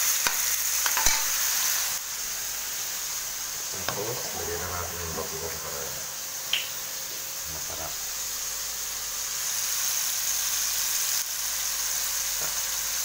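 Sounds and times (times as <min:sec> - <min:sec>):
tomatoes sizzling in hot oil: 0:00.0 - 0:13.0.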